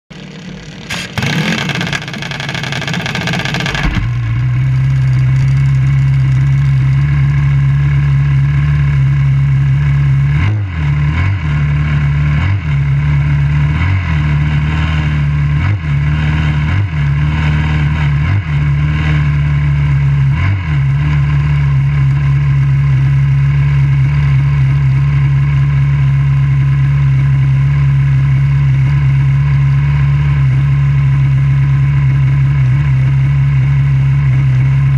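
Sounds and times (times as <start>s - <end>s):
dragster engine idling: 0.1s - 10.2s.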